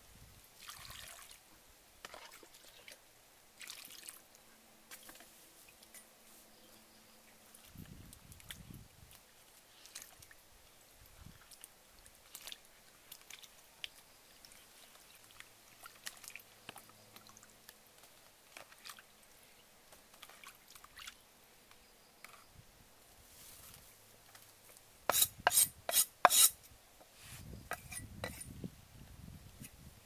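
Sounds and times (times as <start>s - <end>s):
small water splashes: 0.6s - 1.4s, 2.0s - 3.0s, 3.6s - 4.3s, 11.3s - 19.2s, 20.1s - 21.2s.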